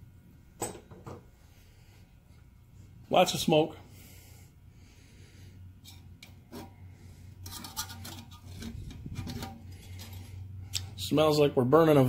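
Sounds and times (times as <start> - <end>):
steady low hum: 0.0 - 12.0
wire scraping and clicking on pail: 5.8 - 6.8, 7.4 - 11.0.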